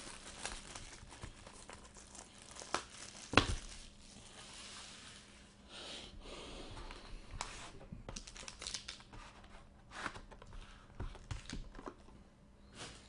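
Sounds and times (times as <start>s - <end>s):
plastic wrapping crinkling: 0.0s - 5.0s, 8.2s - 9.1s.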